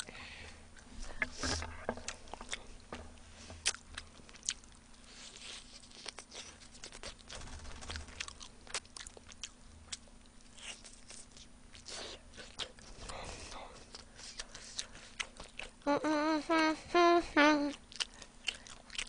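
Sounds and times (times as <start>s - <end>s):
chewing fried chicken: 3.6s - 15.9s, 17.6s - 19.0s.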